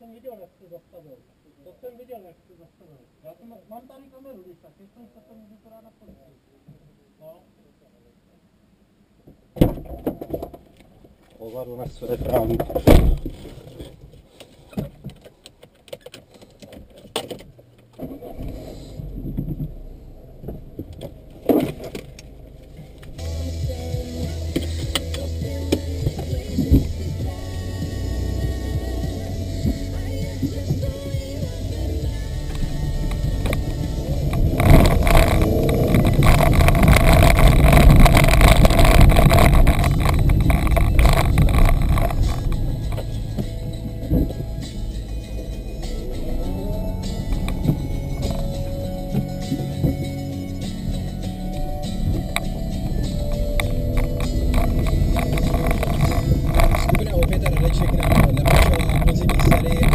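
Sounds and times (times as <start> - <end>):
car engine low rumble: 17.5 - 59.9.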